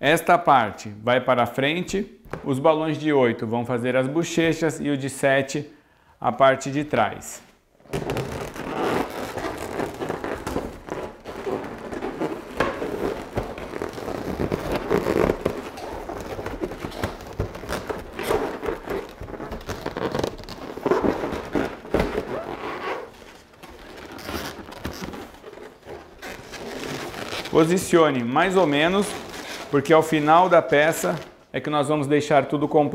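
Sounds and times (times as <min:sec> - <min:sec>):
balloons squeaking and rubbing: 0:07.7 - 0:31.5.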